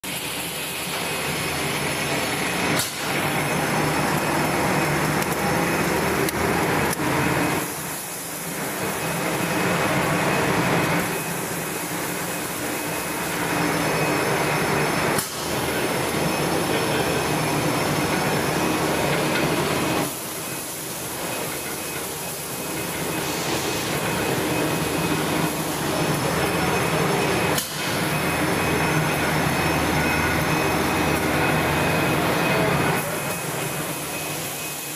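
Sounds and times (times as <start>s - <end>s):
factory machinery din: 0.0s - 34.9s.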